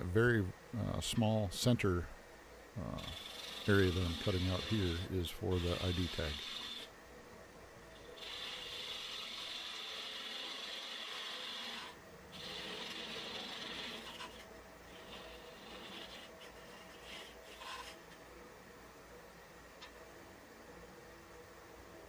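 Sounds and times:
lathe tool scraping wood: 0:03.0 - 0:06.9, 0:08.2 - 0:18.0
wood lathe running: 0:03.0 - 0:06.9, 0:08.2 - 0:14.4.

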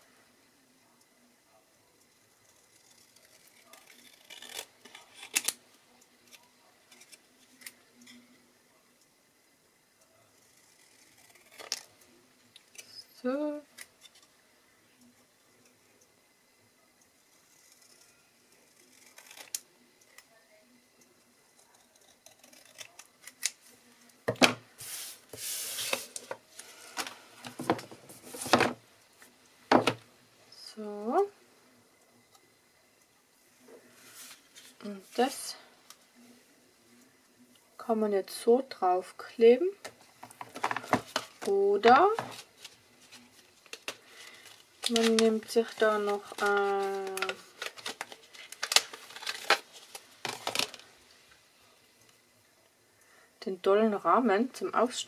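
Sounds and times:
card rustling: 0:42.1 - 0:50.9.

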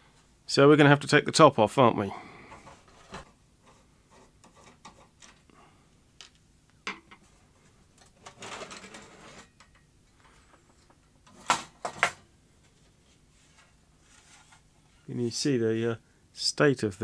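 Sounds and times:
metal case scraping and rattling: 0:08.0 - 0:09.6.

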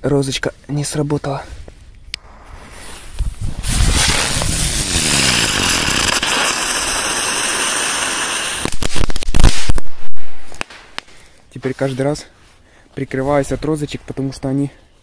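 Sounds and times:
firework spinner hissing and whining: 0:02.2 - 0:09.2
firework crackling: 0:02.2 - 0:11.2
firework sharp bangs: 0:03.4 - 0:11.2.

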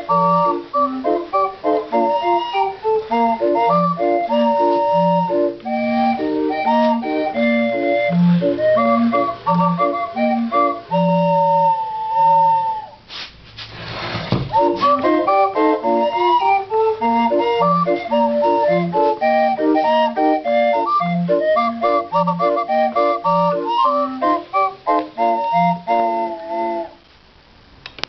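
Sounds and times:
street organ playing a tune: 0:00.0 - 0:13.1, 0:14.4 - 0:27.0
brief rush of noise: 0:13.0 - 0:15.0.

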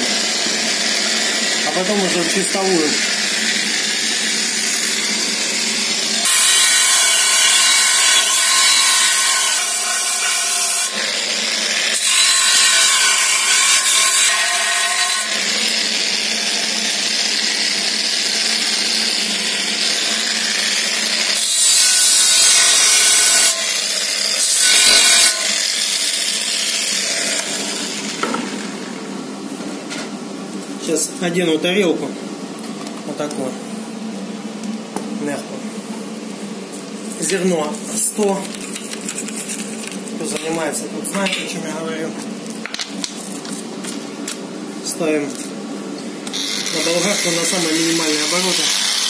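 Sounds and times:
angle grinder grinding metal: 0:00.0 - 0:28.8, 0:46.2 - 0:49.0.

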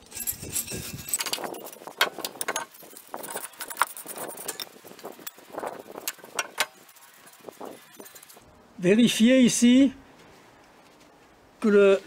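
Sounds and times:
small metal clicks: 0:00.0 - 0:06.8
wire brush scrubbing metal: 0:00.0 - 0:08.4.

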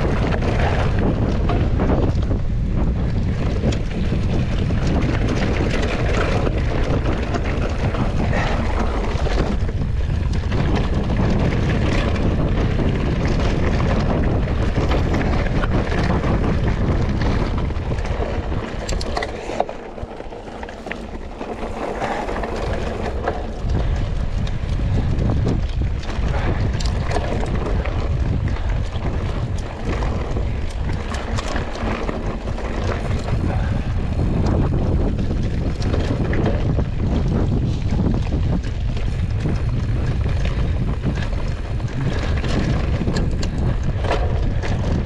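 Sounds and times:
bike clicks and rattles: 0:00.0 - 0:45.0
wind buffeting microphone: 0:00.0 - 0:45.0.

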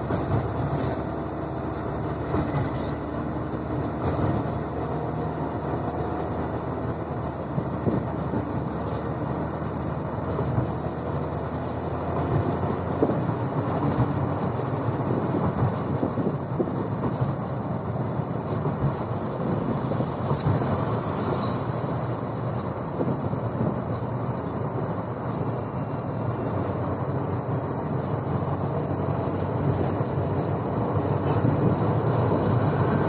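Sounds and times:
rattling rumble: 0:00.0 - 0:33.0
vehicle engine and road noise: 0:00.0 - 0:33.0.

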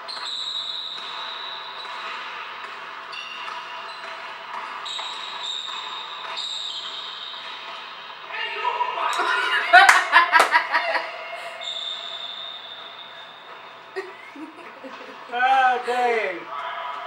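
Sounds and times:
high drawn-out shoe squeaks: 0:00.0 - 0:08.2, 0:11.5 - 0:14.0.

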